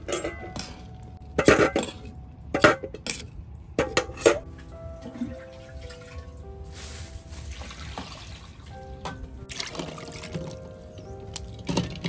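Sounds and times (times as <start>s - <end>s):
metal cookware clinking: 0.0s - 4.5s.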